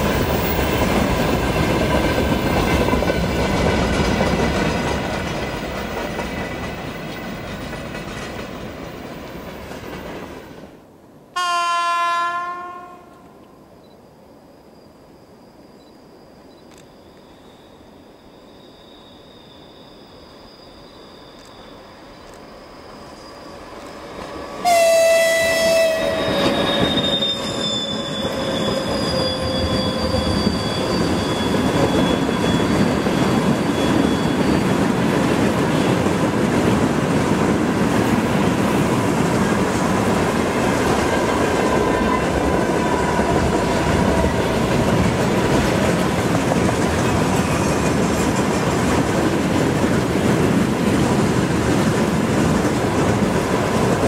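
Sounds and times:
wheels clattering on rails: 0.0 - 10.4, 25.9 - 54.0
train passing with loud rumble: 0.0 - 13.1, 17.4 - 54.0
train horn blast: 11.4 - 13.4, 24.6 - 30.4.

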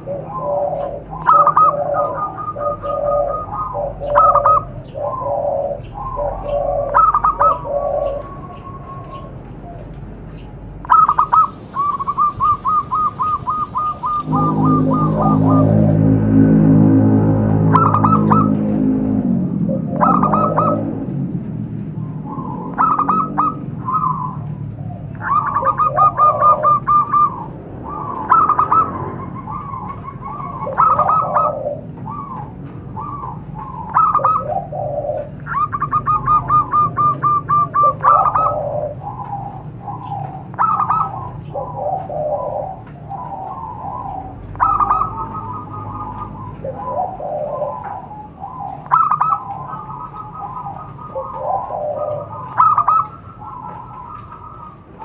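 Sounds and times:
doves cooing: 0.0 - 55.0
low steady hum: 8.2 - 22.8.

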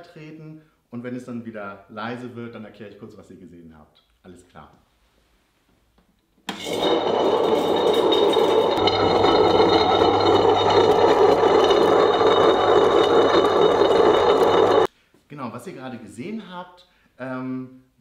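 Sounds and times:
stone rollers grinding: 6.5 - 14.9
grinder motor hum and whine: 6.7 - 14.9.

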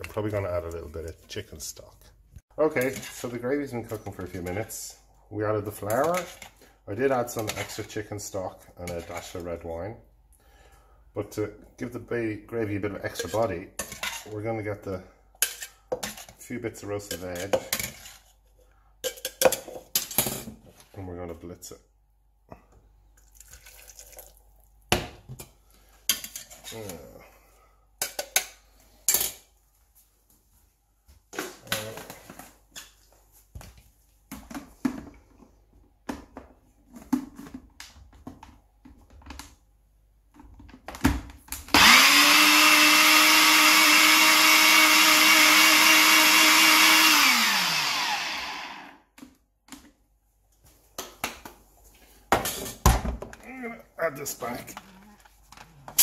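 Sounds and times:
blender motor running: 41.7 - 49.1.

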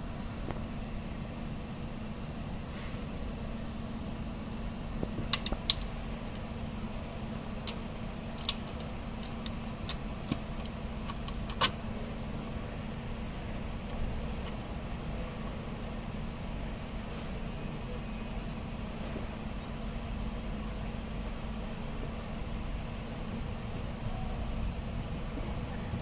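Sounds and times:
steady low hum: 0.0 - 26.0
metallic clicks and taps: 5.3 - 5.9.

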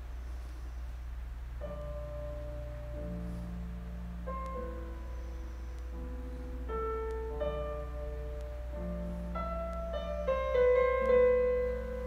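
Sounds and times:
slow classical piano: 0.0 - 12.0.

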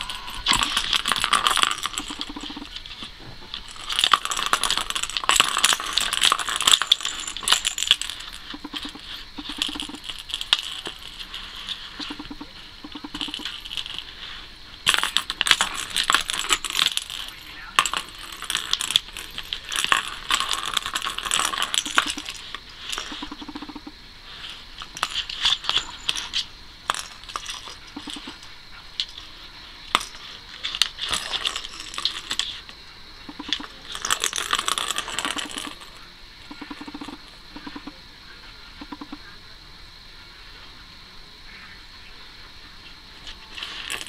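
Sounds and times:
ball rattling in plastic toy: 0.0 - 14.2, 14.8 - 23.9, 24.9 - 32.7, 33.3 - 38.0, 43.2 - 44.0.

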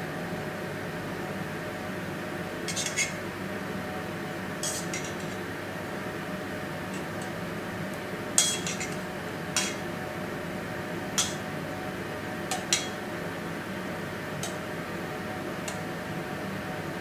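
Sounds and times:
steady hum: 1.9 - 17.0
metal tongs clinking: 2.7 - 3.2, 4.6 - 5.4, 8.4 - 9.0, 9.6 - 9.8, 11.2 - 11.4, 12.5 - 13.0.

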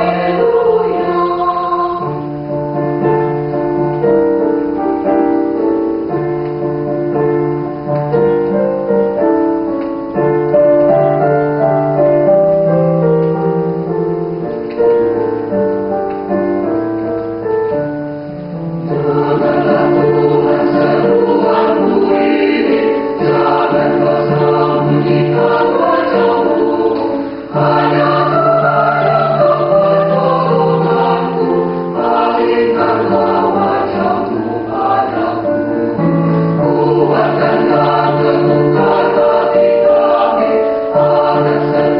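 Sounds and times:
mixed choir singing: 0.0 - 3.5, 18.8 - 41.9.

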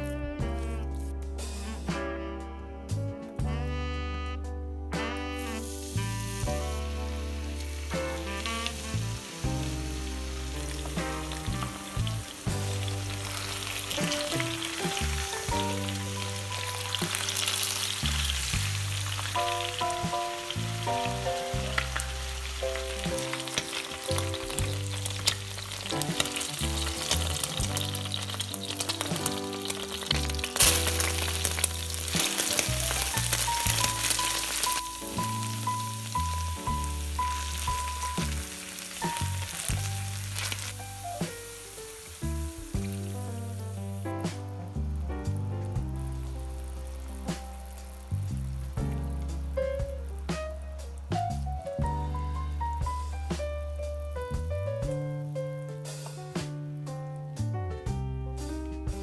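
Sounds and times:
background music: 0.0 - 59.0
food sizzling in oil: 5.0 - 56.2.

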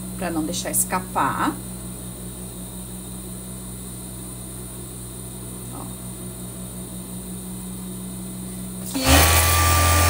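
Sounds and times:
sewing machine motor humming: 8.8 - 10.0.

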